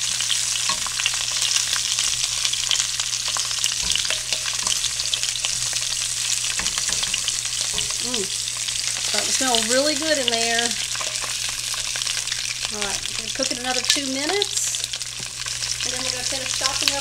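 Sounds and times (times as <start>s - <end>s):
sausages sizzling in oil: 0.0s - 17.0s
tongs knocking against pan: 2.7s - 8.1s.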